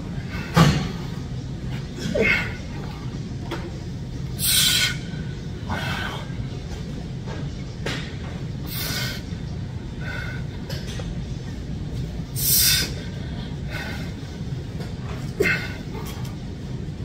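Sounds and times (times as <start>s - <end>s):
low gym rumble: 0.0s - 17.0s.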